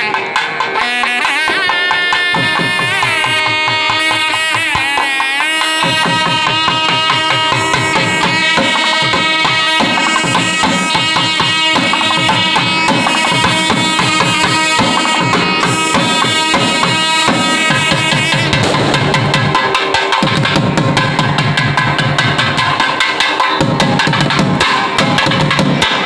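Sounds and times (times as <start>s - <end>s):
double-reed pipes playing melody: 0.0s - 19.9s
fast dense drum strokes: 5.6s - 26.0s.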